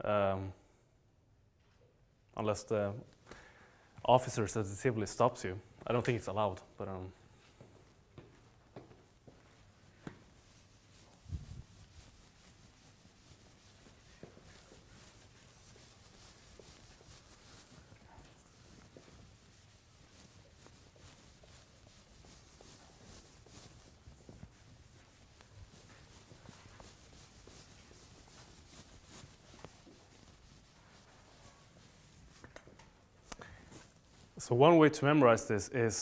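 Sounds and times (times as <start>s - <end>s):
sponge rubbing on chalkboard: 7.2s - 32.8s, 33.6s - 34.6s.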